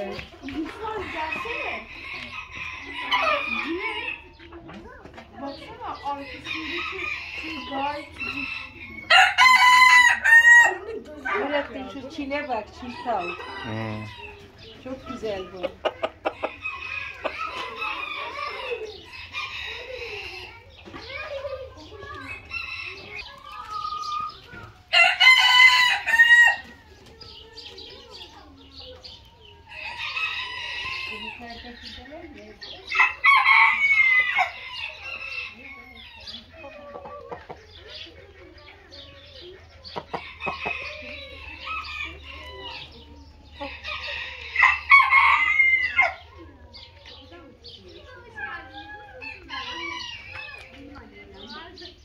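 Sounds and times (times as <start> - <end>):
hens clucking: 0.0 - 52.0
rooster crowing: 6.5 - 10.8, 24.9 - 26.7.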